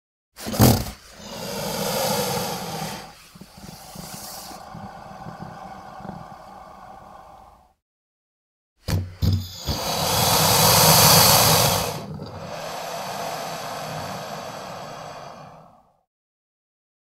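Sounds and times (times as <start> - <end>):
creature snorts: 0.5 - 7.6, 9.4 - 15.9
creature hissing exhale: 1.0 - 7.8, 9.4 - 16.1.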